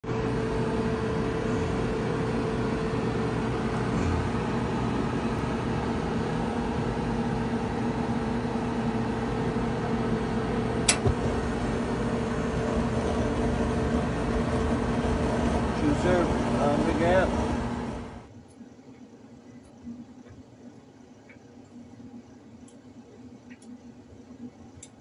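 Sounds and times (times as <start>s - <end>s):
clothes dryer humming: 0.0s - 25.0s
gas valve click: 10.8s - 11.2s.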